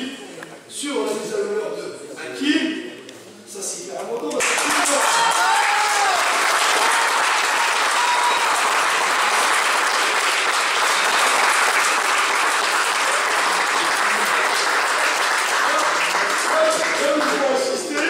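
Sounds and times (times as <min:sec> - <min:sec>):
crowd applauding: 0:04.4 - 0:18.0.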